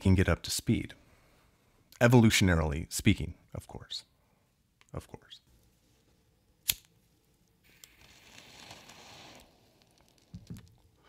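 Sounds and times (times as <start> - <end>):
faint hiss: 7.5 - 11.0.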